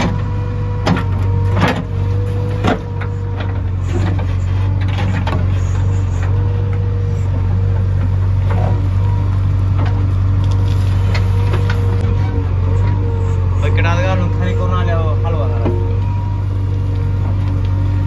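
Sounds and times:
diesel engine running: 0.0 - 18.0
steady whine: 0.0 - 18.0.

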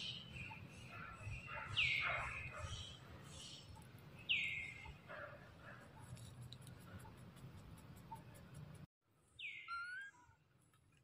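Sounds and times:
faint outdoor background: 0.0 - 11.0
high-pitched animal calls: 9.5 - 10.4.

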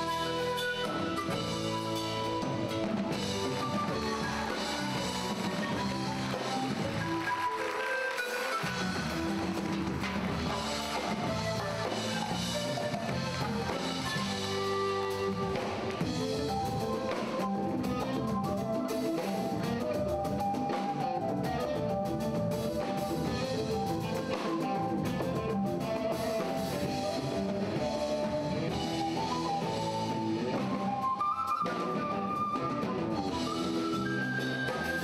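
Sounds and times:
bass guitar: 0.0 - 7.7, 8.4 - 35.0
hand drums: 0.0 - 21.6
drum kit: 0.0 - 35.0
electric guitars: 0.0 - 35.0.

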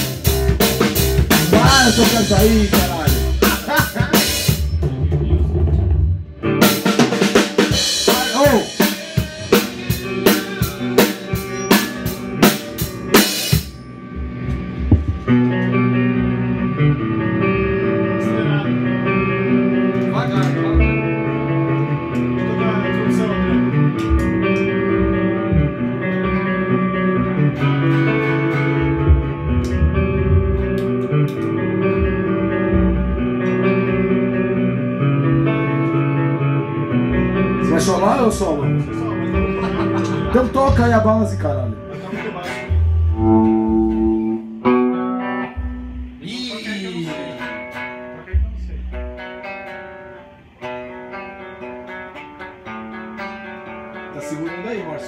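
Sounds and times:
drum kit with cymbal hits: 0.0 - 17.1, 17.9 - 36.1, 37.1 - 44.5
guitar: 0.0 - 55.0.

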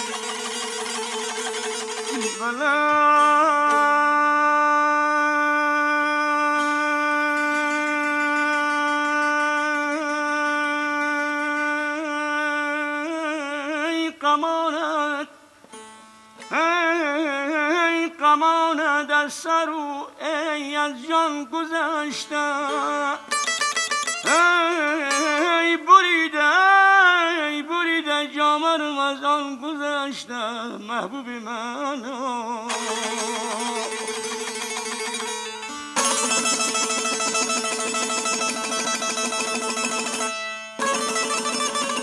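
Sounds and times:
strummed lute: 0.0 - 12.6, 21.7 - 27.4, 32.7 - 42.0
man singing folk melody: 1.4 - 15.5, 16.4 - 40.2.

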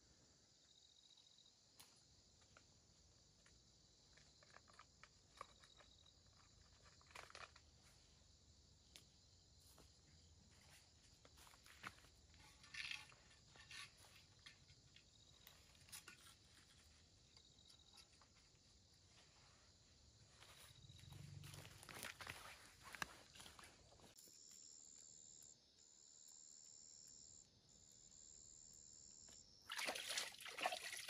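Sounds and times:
faint insect drone: 0.0 - 31.0
soft rustles: 9.6 - 24.2.

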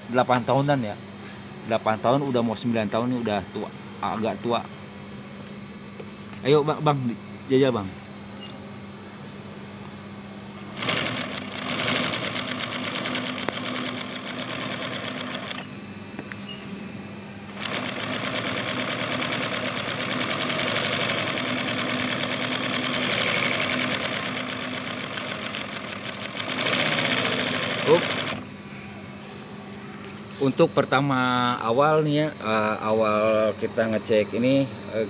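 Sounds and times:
steady low hum: 0.0 - 35.0
sewing machine stitching: 10.8 - 15.7, 17.6 - 28.4.

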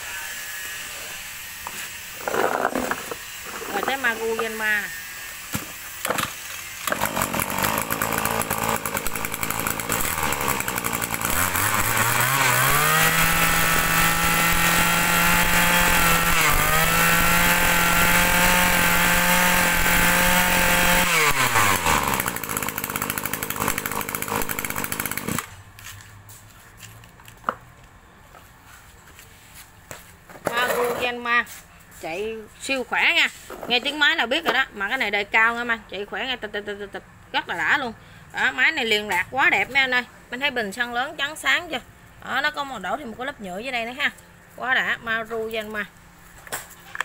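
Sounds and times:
brush cutter engine revving: 1.6 - 25.6.

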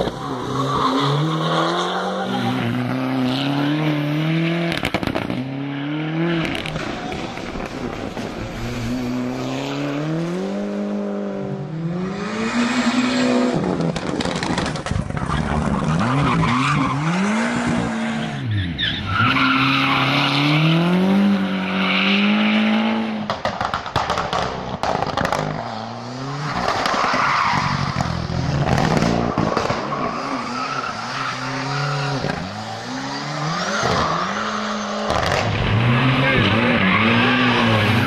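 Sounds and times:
rally car engine revving: 0.0 - 38.0.

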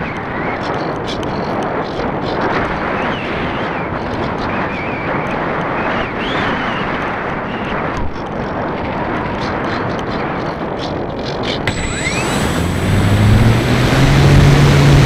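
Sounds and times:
wind rushing over microphone: 0.0 - 15.0
faint wavering high whine: 11.7 - 15.0.

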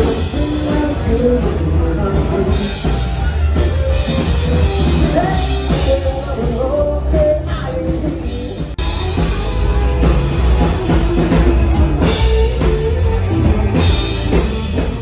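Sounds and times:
person singing: 0.0 - 8.8
drum and bass beat: 0.0 - 15.0.

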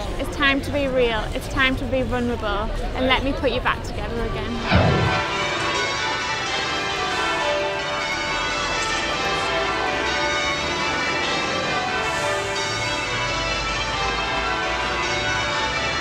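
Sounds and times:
church bells pealing: 4.4 - 16.0.

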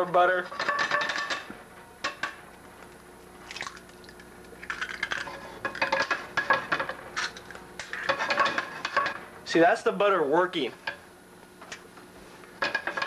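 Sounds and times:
liquid bubbling in frying pan: 3.3 - 9.2.

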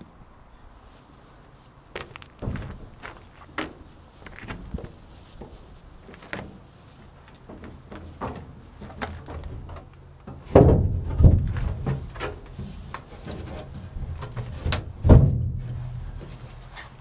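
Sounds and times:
rumbling and scraping: 2.0 - 17.0
boat hull thumping frame: 2.4 - 3.8, 7.4 - 16.6.

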